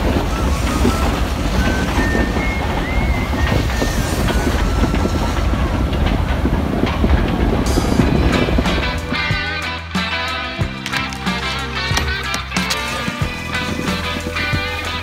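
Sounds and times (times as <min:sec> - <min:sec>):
freight train rumbling: 0:00.0 - 0:09.9.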